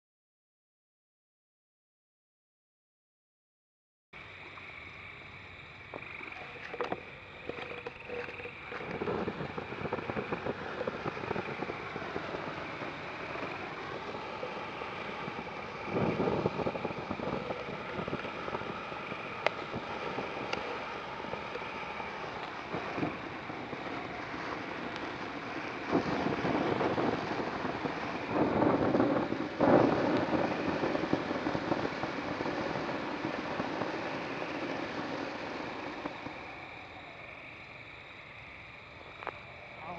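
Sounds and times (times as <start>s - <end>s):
fountain firework hissing: 4.2s - 39.9s
firework pops and crackles: 5.9s - 37.0s.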